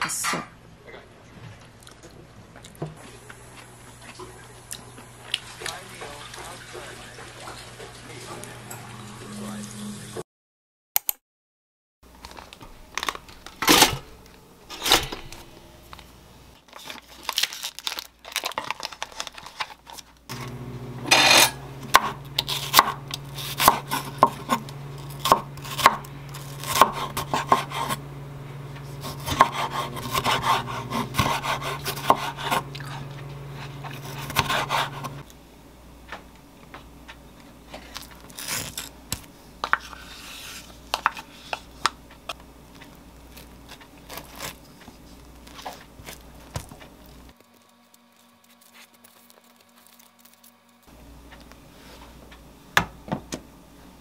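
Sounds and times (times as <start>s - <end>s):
toaster lever clunk: 13.6s - 15.5s, 21.0s - 21.6s
steady low hum: 20.3s - 54.0s
knife chopping onion on wooden board: 21.1s - 28.0s, 29.0s - 32.7s, 33.6s - 35.2s.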